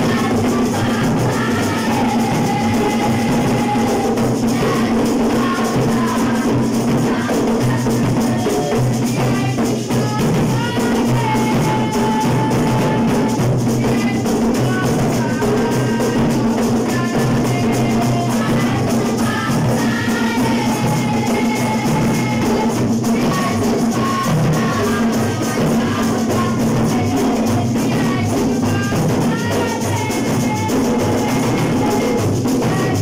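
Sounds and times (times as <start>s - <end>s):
boy singing: 0.0s - 33.0s
hand drums and metal percussion: 0.0s - 33.0s.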